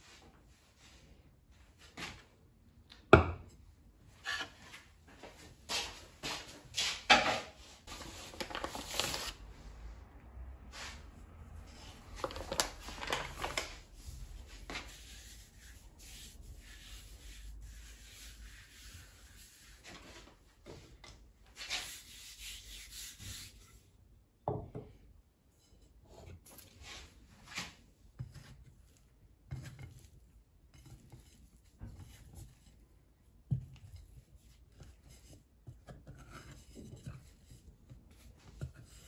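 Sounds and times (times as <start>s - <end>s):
hands rubbing bread dough: 11.6s - 20.4s, 21.5s - 23.8s.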